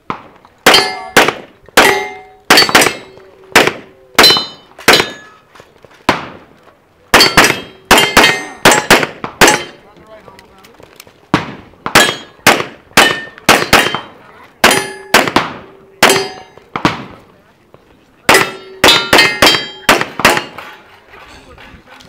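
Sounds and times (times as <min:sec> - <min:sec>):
ringing steel plate: 0:00.7 - 0:01.2, 0:18.3 - 0:20.9
rapid pistol fire: 0:07.2 - 0:09.7, 0:11.4 - 0:17.2.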